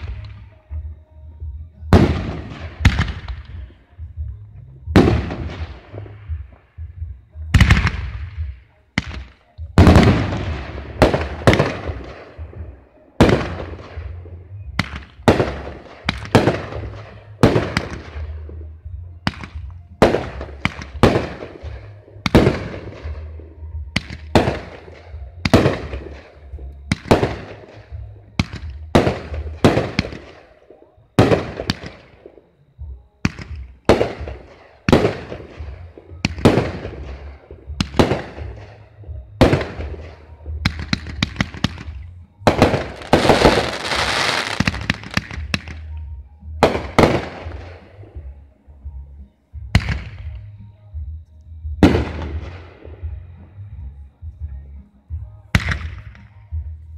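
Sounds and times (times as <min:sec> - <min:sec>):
firework shells bursting: 0:40.7 - 0:45.8
firework crackling: 0:40.7 - 0:45.9.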